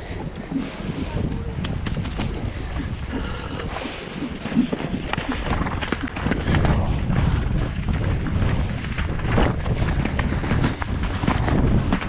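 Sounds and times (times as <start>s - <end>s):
wind buffeting microphone: 0.0s - 12.0s
hoofbeats on soft wet turf: 7.8s - 12.0s.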